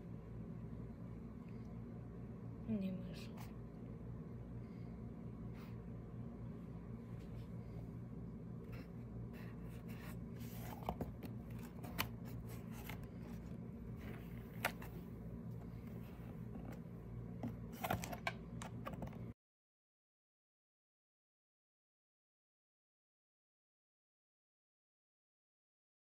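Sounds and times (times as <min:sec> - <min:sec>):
low hum: 0:00.0 - 0:19.4.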